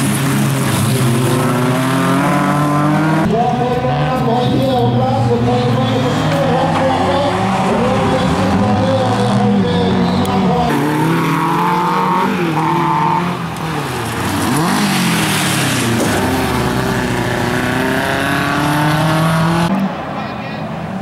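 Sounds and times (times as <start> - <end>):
race car engines revving: 0.0 - 21.0
tyres sliding on gravel: 13.6 - 17.2.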